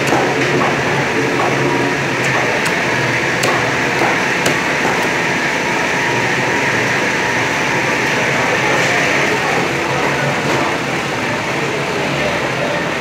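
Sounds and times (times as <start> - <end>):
fish market din: 0.0 - 13.0
cleaver chopping on wooden block: 2.2 - 5.1.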